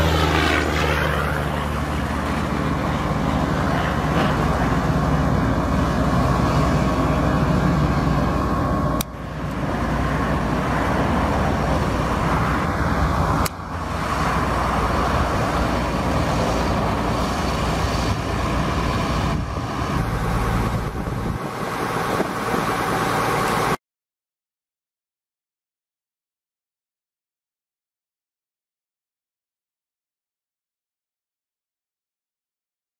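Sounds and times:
tractor diesel engine running: 0.0 - 23.8.

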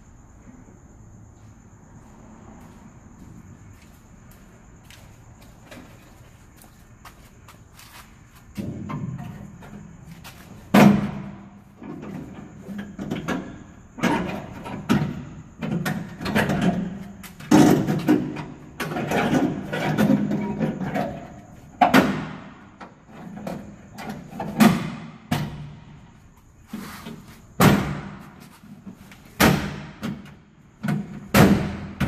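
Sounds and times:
knocks on sheet metal door: 27.6 - 28.2, 29.4 - 32.0.

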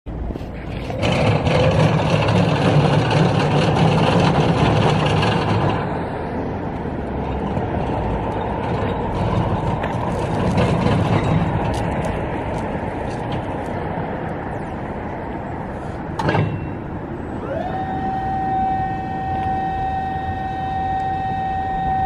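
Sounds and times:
wheels rolling on brick paving: 0.3 - 15.0.

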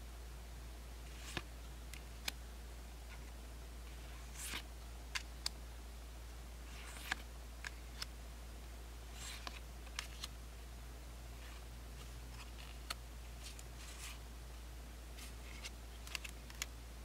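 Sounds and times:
faint low hum: 0.0 - 17.0
cards sliding swishes: 1.1 - 2.4, 4.0 - 5.3, 6.6 - 8.1, 9.1 - 10.3, 11.4 - 14.2, 15.2 - 16.7.

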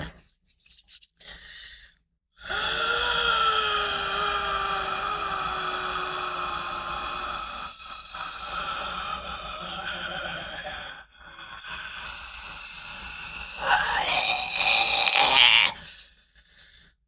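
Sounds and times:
man's strained throat noise: 2.4 - 16.0.

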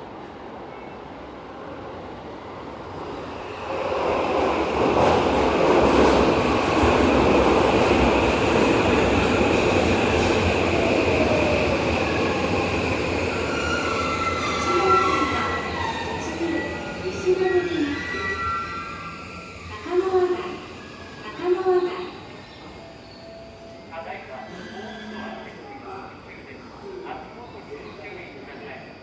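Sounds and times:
subway train rumble: 0.0 - 29.0
high squealing tones: 22.3 - 29.0.

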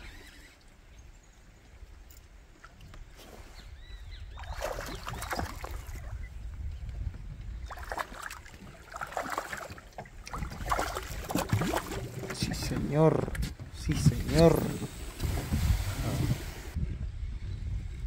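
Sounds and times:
fish splashing at water surface: 7.8 - 12.4.

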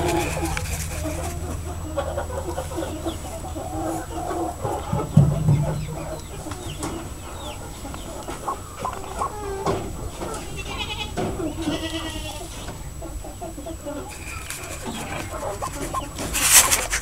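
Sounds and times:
fowl clucking and chirping: 0.0 - 17.0.

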